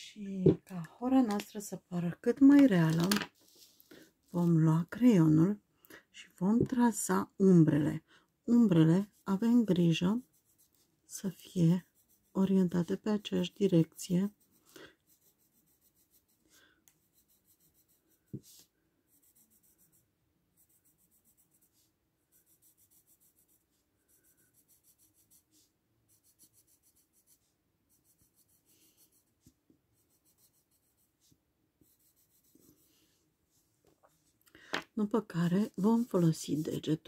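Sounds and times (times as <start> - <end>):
pencil scratching on paper: 7.7 - 33.2, 35.0 - 37.0.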